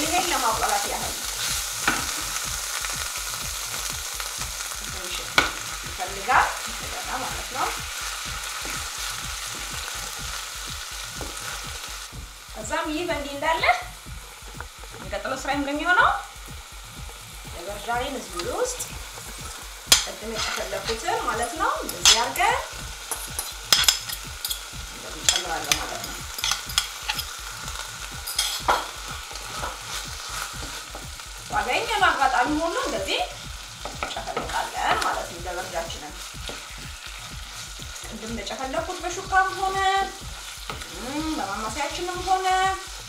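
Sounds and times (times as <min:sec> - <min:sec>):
food sizzling: 0:00.0 - 0:43.0
wooden spoon scraping a pan: 0:19.2 - 0:24.6, 0:28.3 - 0:31.0.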